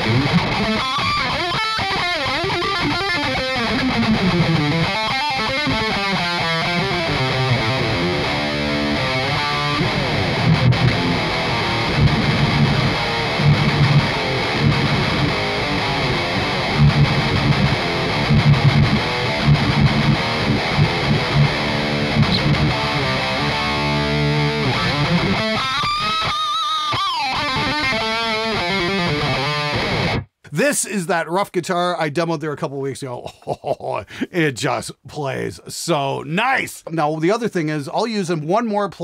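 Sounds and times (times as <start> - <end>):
distorted electric guitar: 0.0 - 30.6.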